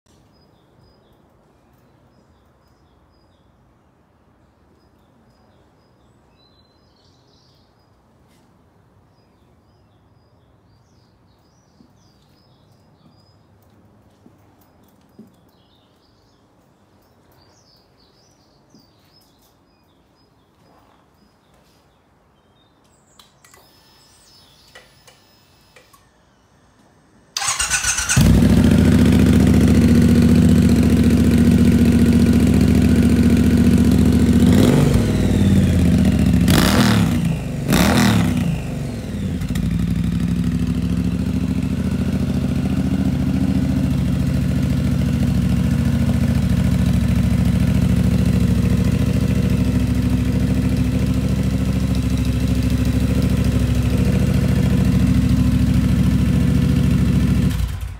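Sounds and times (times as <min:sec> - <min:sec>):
birds chirping faintly: 0:00.1 - 0:55.7
motorcycle engine idling loudly: 0:27.4 - 0:57.9.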